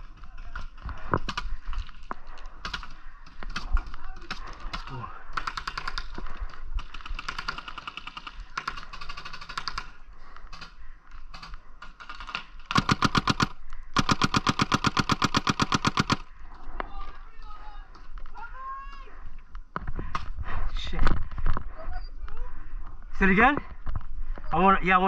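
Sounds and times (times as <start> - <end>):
paintball markers firing rapidly: 2.6 - 10.7, 11.3 - 16.3.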